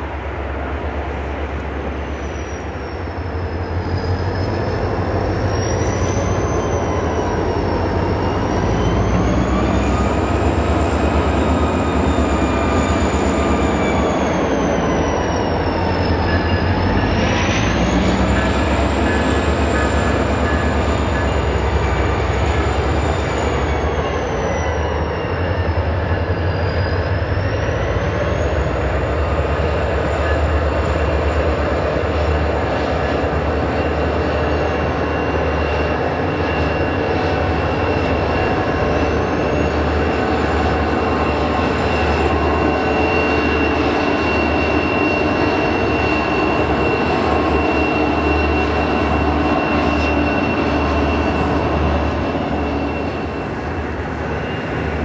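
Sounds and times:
freight train rolling past: 0.0 - 55.0.

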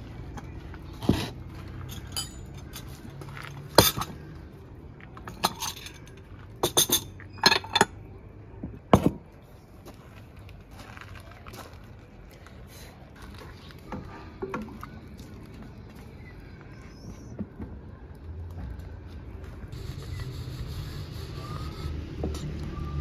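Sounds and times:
bowls and spoons clinking: 1.9 - 2.9, 5.3 - 8.0.

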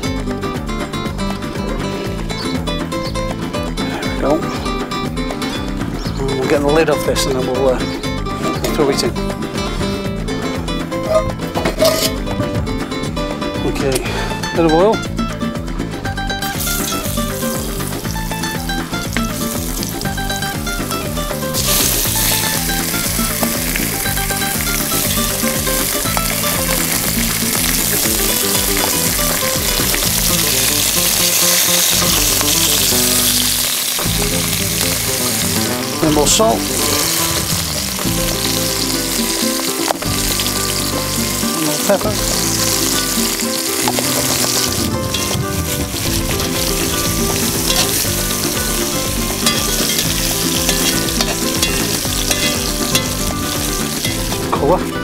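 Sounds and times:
background music: 0.0 - 55.0
chicken sizzling in hot oil: 16.3 - 55.0
metal tongs clicking on pot: 49.4 - 53.2.

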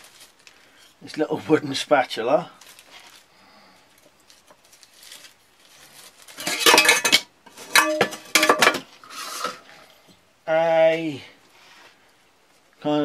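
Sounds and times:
metal pots and pans clanking: 6.4 - 9.6.

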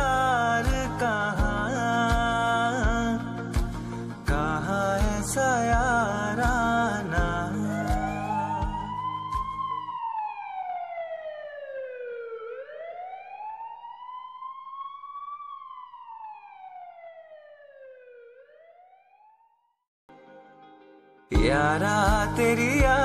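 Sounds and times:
siren wailing: 7.5 - 19.7.

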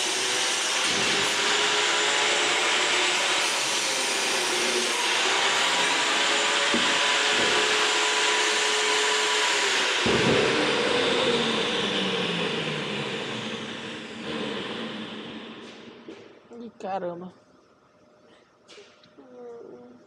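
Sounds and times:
electric motor whining: 0.0 - 16.0.

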